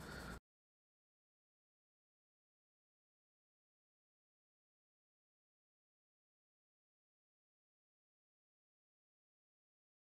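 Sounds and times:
faint hiss: 0.0s - 0.4s.

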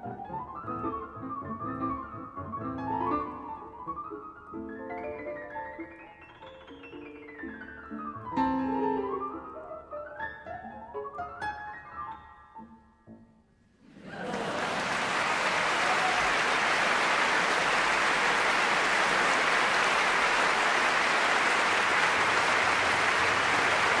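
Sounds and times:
audience applauding: 13.9s - 24.0s.

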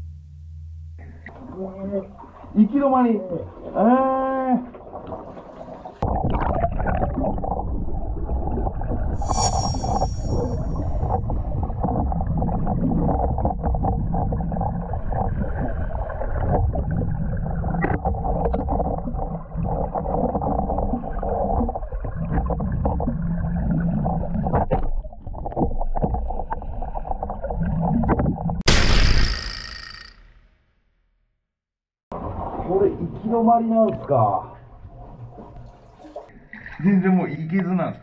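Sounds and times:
underwater exhaled bubbles: 4.8s - 9.2s, 10.5s - 28.6s.

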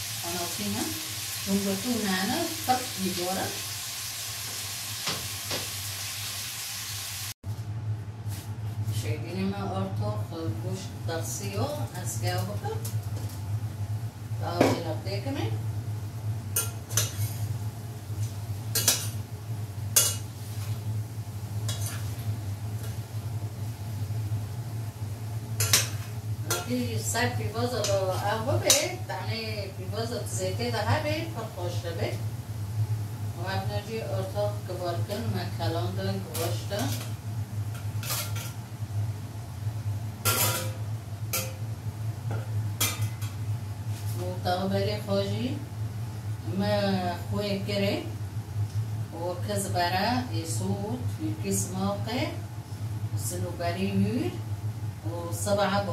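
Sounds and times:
steady low hum: 7.5s - 55.9s
metal tray and pans clinking: 37.7s - 38.6s, 40.2s - 41.6s, 42.3s - 43.4s.

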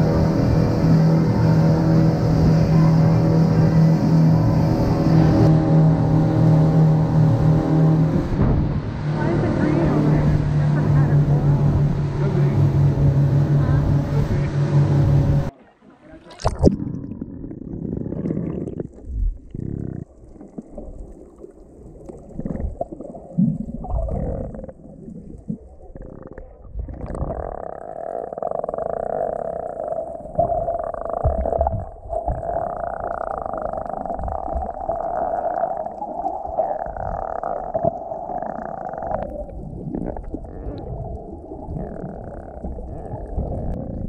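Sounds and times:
underwater rumbles and gurgles: 0.0s - 15.6s, 16.3s - 44.0s
steady hum: 0.0s - 17.4s.

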